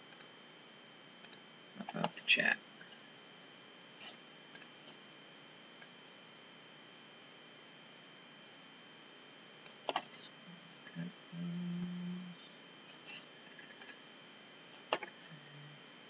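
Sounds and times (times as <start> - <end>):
computer mouse clicking: 0.1 - 0.3, 1.2 - 1.4, 4.5 - 4.7, 12.9 - 14.0
brief low hum: 10.2 - 12.6, 15.1 - 16.0.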